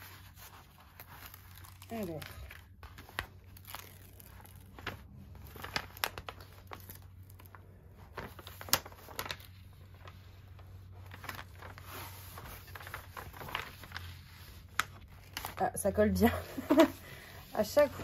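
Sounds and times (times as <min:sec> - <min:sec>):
canvas rustling and crinkling: 0:00.0 - 0:18.0.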